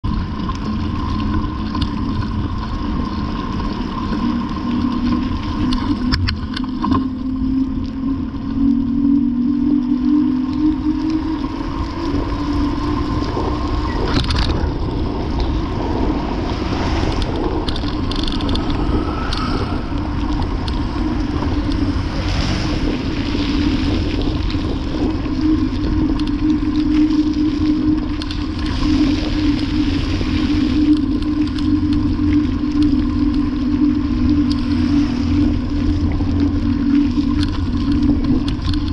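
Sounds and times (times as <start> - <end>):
steady hum: 0.0 - 38.9
wind buffeting microphone: 0.0 - 38.9
bicycle tyres hissing on wet pavement: 10.1 - 38.8.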